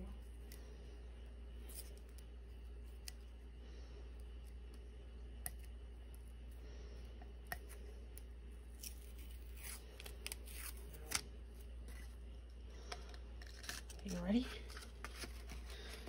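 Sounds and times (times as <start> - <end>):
paper rustling and crinkling: 13.4 - 16.0.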